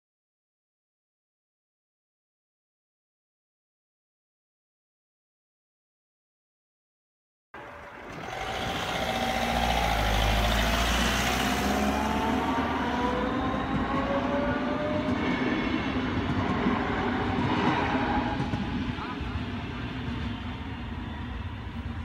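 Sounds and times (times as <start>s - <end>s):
electric train traction whine: 7.6s - 22.0s
low train rumble: 7.6s - 22.0s.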